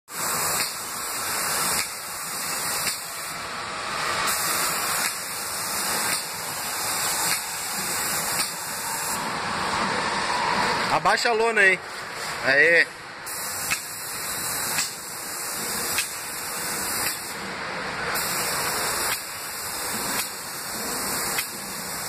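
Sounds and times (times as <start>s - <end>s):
spray gun hissing: 0.1s - 3.4s, 4.2s - 9.2s, 13.2s - 17.4s, 18.2s - 22.0s.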